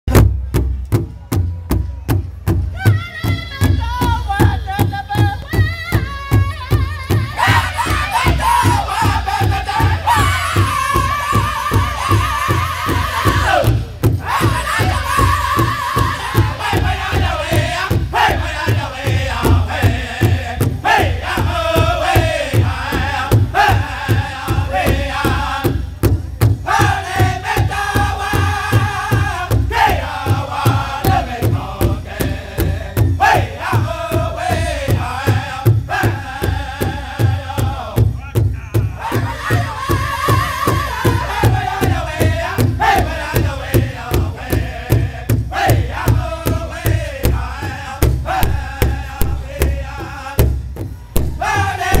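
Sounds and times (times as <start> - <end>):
bass drum steady beat: 0.1 - 52.0
men singing together: 7.0 - 52.0.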